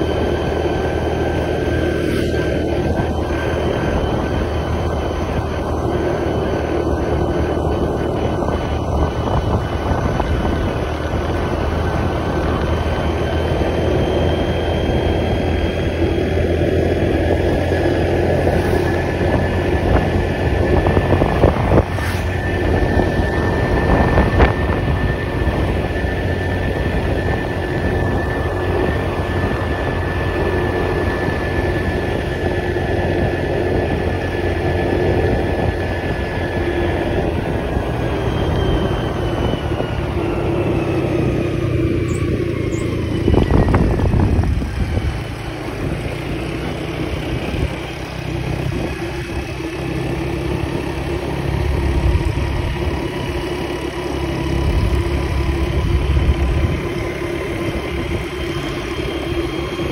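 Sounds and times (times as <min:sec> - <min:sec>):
moving vehicle running noise: 0:00.0 - 0:59.9.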